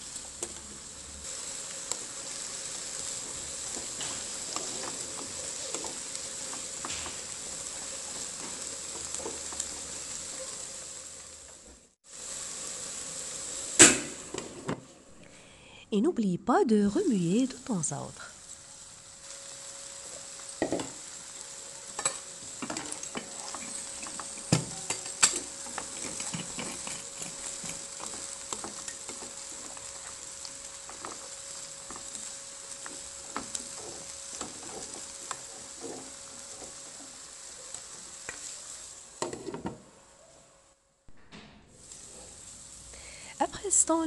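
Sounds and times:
beans sizzling in a frying pan: 0:00.0 - 0:40.8, 0:41.6 - 0:44.0
spatula scraping a pan: 0:01.4 - 0:10.6, 0:21.9 - 0:39.7.

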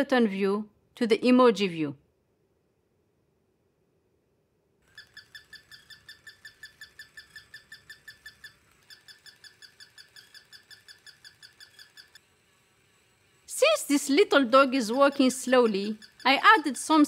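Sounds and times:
toy dog electronic yips: 0:04.8 - 0:12.2, 0:12.9 - 0:17.0.

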